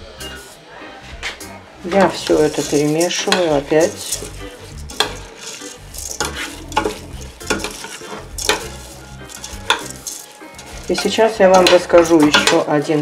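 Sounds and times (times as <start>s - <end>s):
rice grains rustling: 1.8s - 12.5s
spoon knocking on metal pot: 2.0s - 4.2s, 6.2s - 12.7s.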